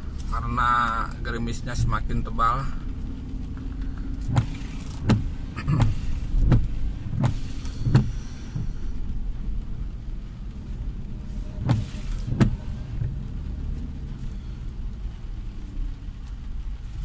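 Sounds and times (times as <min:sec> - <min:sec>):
car cabin rumble: 0:00.0 - 0:17.0
windscreen wipers squeaking: 0:02.9 - 0:09.8, 0:10.5 - 0:17.0.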